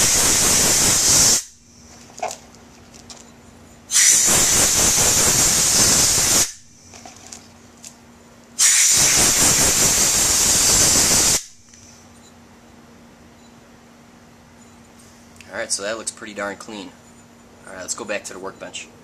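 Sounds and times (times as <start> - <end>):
compressed air blasts hissing: 0.0 - 2.0, 3.9 - 7.0, 8.6 - 12.0.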